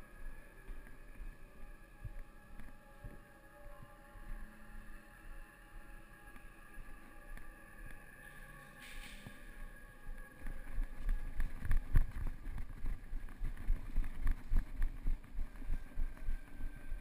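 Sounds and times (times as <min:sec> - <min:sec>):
wind noise on microphone: 0:08.8 - 0:17.0
running footsteps on concrete: 0:10.4 - 0:16.7.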